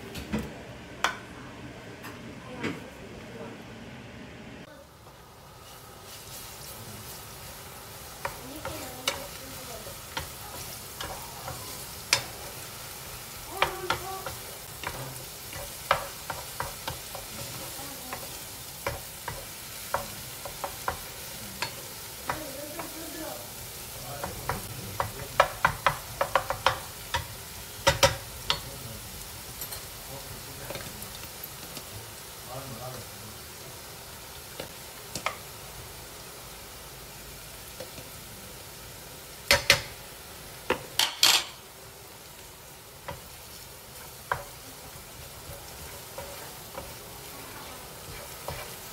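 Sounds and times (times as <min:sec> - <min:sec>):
garlic sizzling in a frying pan: 0:04.6 - 0:48.9
wooden spoon knocking on pan: 0:13.5 - 0:23.0, 0:24.2 - 0:28.7, 0:39.5 - 0:40.0, 0:44.2 - 0:44.6.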